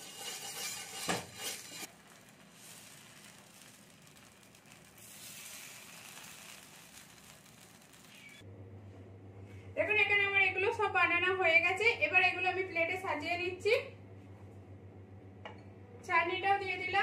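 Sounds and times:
batter hissing on hot pan: 0.0 - 8.4
oil sizzling on hot pan: 0.0 - 8.4.

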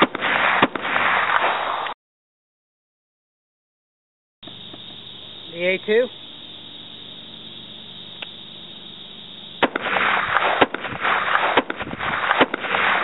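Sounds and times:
rifle shots: 0.0 - 2.0, 9.6 - 13.0
faint click: 8.2 - 8.4.

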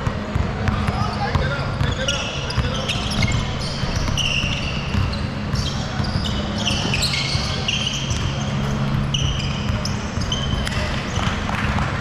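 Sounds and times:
basketball bouncing: 0.0 - 12.0
sneakers squeaking on court: 0.0 - 12.0
steady low hum: 0.0 - 12.0.

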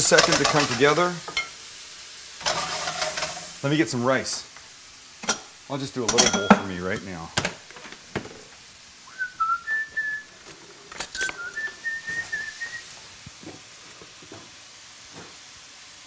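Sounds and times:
person whistling a tune: 9.1 - 10.3, 11.2 - 12.8.

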